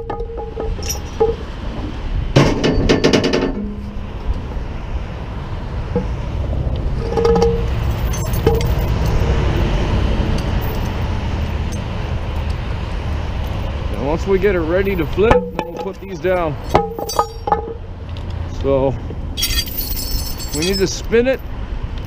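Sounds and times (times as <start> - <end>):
sharp clinks and rattles: 0.0 - 1.6, 7.0 - 9.3, 10.4 - 12.6, 13.4 - 18.3, 19.4 - 21.5
low rumble of vehicles: 0.0 - 22.0.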